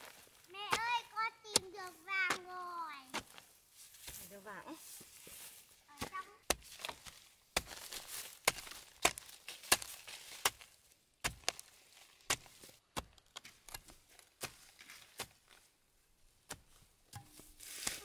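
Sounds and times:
earth scraping and crumbling: 0.0 - 15.7
hoe chopping into soil: 6.0 - 11.7, 12.3 - 15.6, 16.4 - 18.0.

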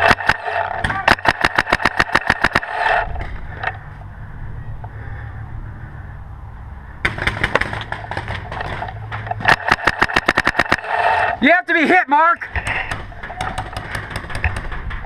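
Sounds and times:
paintball marker shots: 0.0 - 3.0, 7.0 - 11.2.

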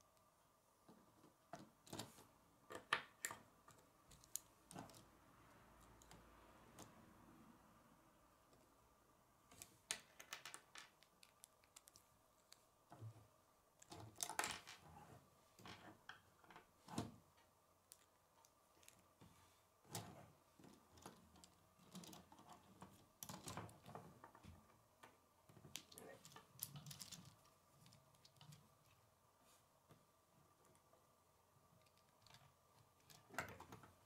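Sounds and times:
plastic pieces clicking: 9.6 - 12.6, 25.7 - 28.6.

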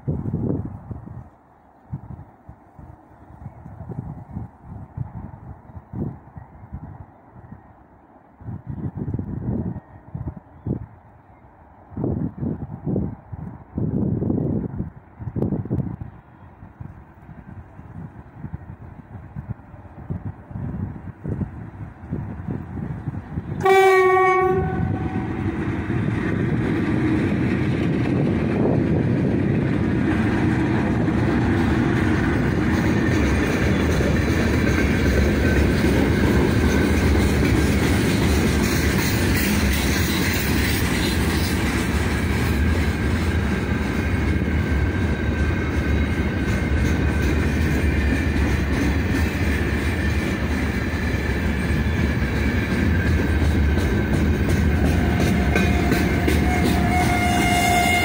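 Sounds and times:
train wheels rumbling on rails: 0.0 - 58.0
clickety-clack over rail joints: 16.8 - 58.0
locomotive horn blast: 23.6 - 25.6, 55.0 - 58.0.

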